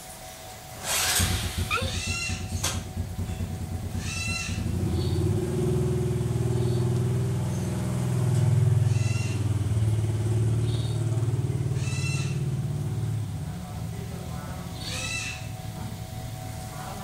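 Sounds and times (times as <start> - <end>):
motor engine low pulsing drone: 0.0 - 17.0
short animal calls: 1.6 - 2.4, 14.8 - 15.6.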